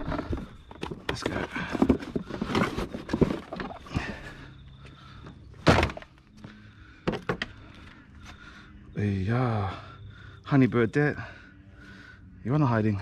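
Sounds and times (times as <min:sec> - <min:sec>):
box handling noise: 0:00.0 - 0:04.3
loud thunk: 0:05.6 - 0:06.1.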